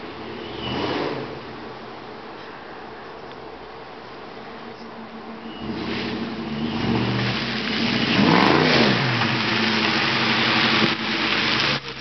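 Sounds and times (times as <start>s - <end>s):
car engine accelerating: 5.4s - 12.0s.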